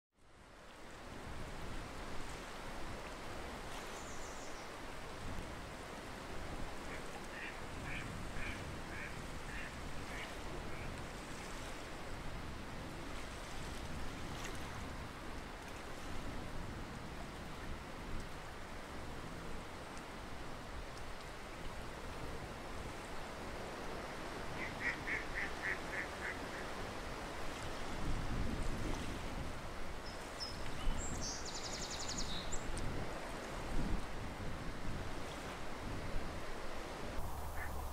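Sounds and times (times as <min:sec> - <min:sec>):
ducks quacking: 0:24.6 - 0:26.6
steady background hiss: 0:36.6 - 0:37.9.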